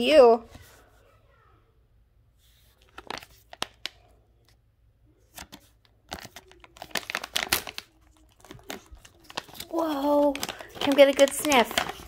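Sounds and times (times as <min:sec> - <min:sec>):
plastic pouch ripping and crinkling: 0:02.8 - 0:04.0, 0:05.4 - 0:12.0.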